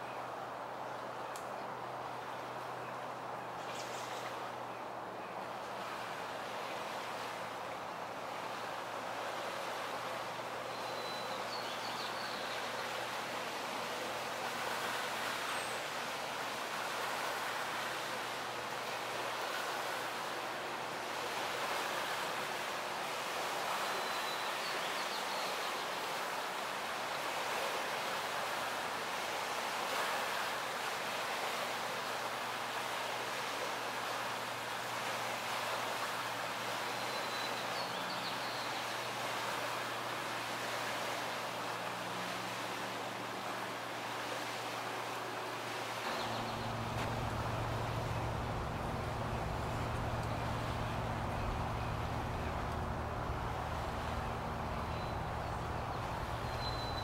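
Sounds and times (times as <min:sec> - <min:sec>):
steady outdoor background rush: 0:25.9 - 0:57.0
low hum: 0:46.1 - 0:56.7.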